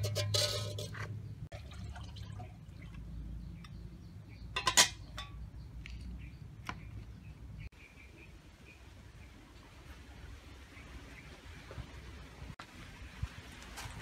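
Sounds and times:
metal lid clanking on pot: 0:00.0 - 0:01.2, 0:04.5 - 0:05.4.

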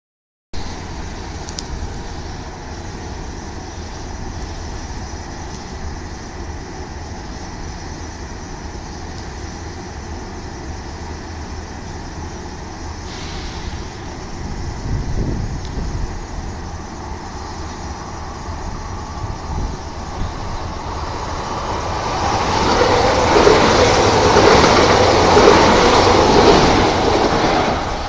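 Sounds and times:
bright hiss: 0:00.6 - 0:28.0
railway platform rumble and hiss: 0:00.6 - 0:28.0.

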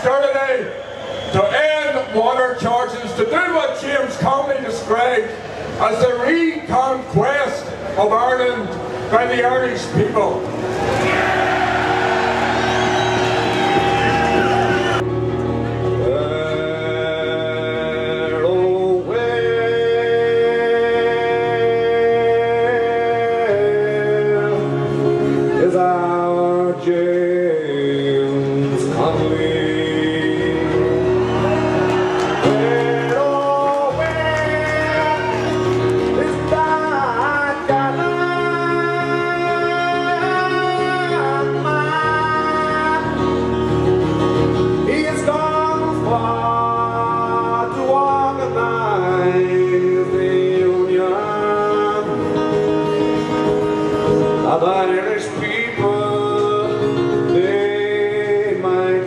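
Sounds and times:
strummed acoustic guitar: 0:08.7 - 0:59.0
man singing ballad: 0:16.0 - 0:31.4, 0:32.4 - 0:43.5, 0:44.8 - 0:59.0.

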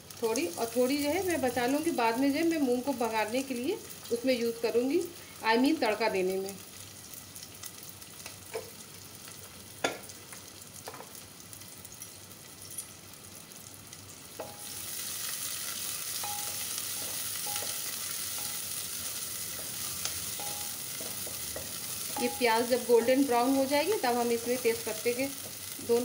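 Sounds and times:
onions sizzling in hot oil: 0:00.0 - 0:26.0
wooden spoon stirring: 0:16.2 - 0:25.6.

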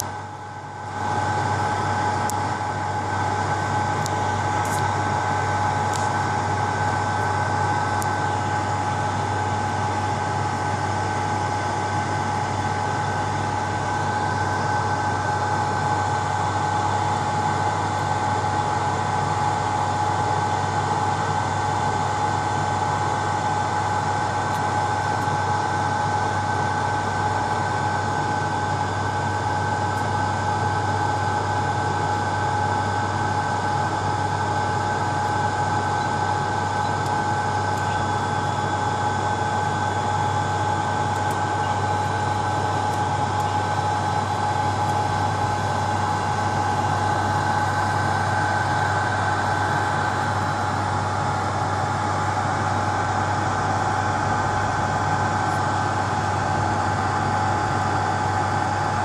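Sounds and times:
constant whine: 0:00.0 - 0:59.0
hot-air blower fan hiss: 0:00.1 - 0:59.0
low hum: 0:23.4 - 0:59.0.

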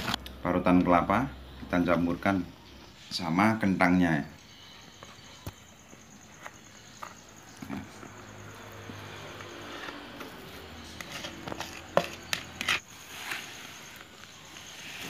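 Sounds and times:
mashed potato scraped from bowl: 0:10.8 - 0:14.0.

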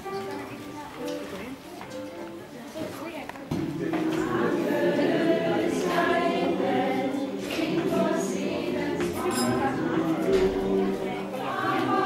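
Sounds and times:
choir singing: 0:03.6 - 0:12.0.

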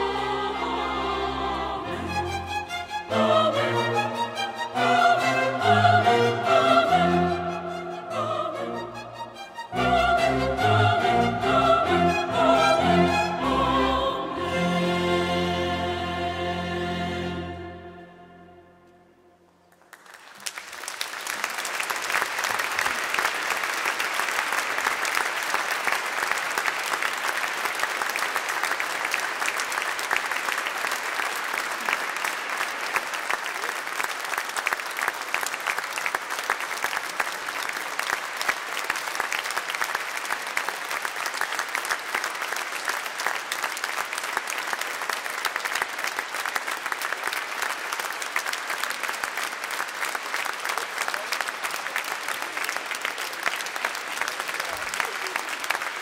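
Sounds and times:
audience applauding: 0:19.7 - 0:56.0.

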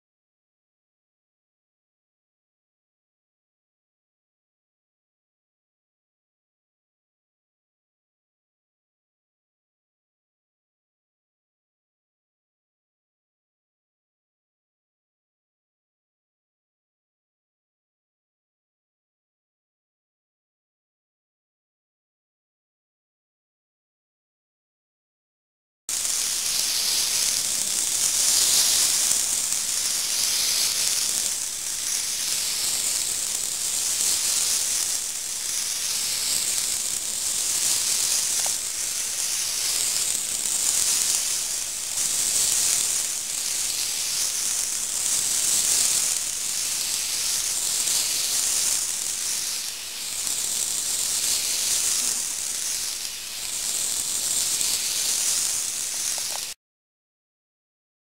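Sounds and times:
model train motor hiss: 0:25.9 - 0:56.6.

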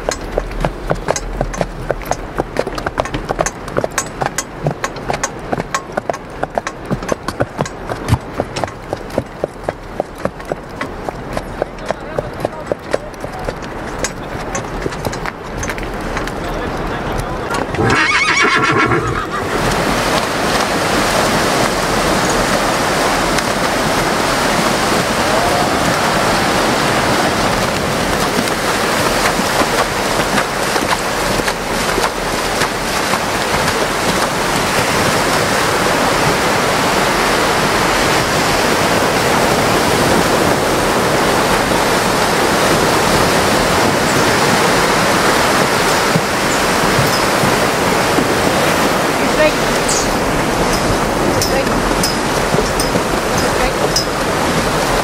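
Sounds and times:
surf breaking on sandy beach: 0:19.4 - 0:55.0.

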